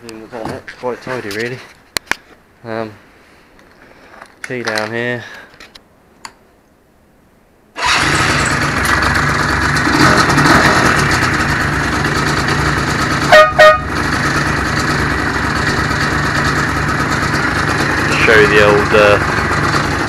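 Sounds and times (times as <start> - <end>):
quad bike engine idling: 7.8 - 20.0
air horn toots: 13.2 - 14.0.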